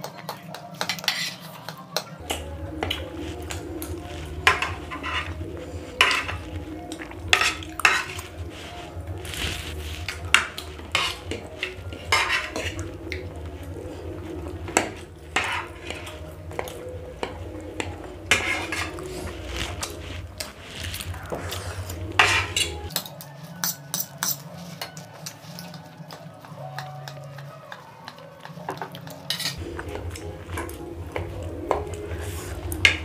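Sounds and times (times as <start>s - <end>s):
forks clinking on plates: 0.0s - 8.8s, 9.4s - 13.2s, 21.9s - 26.9s, 28.7s - 29.6s.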